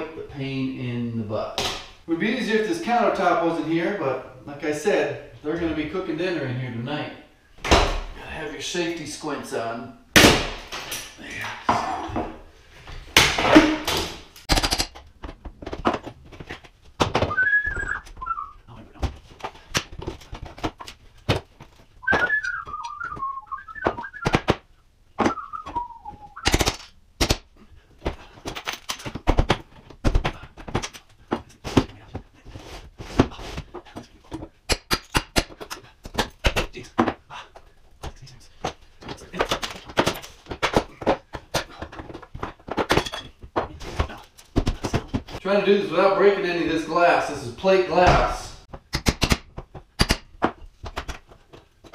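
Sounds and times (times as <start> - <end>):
wavering whistle: 17.3 - 18.6, 22.0 - 24.3, 25.3 - 26.5.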